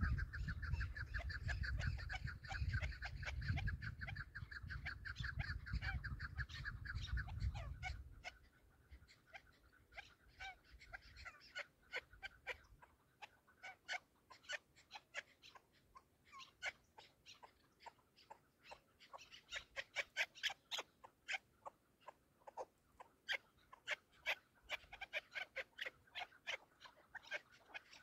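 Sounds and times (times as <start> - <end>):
wind on microphone: 0.0 - 8.2
partridges calling: 0.0 - 28.0.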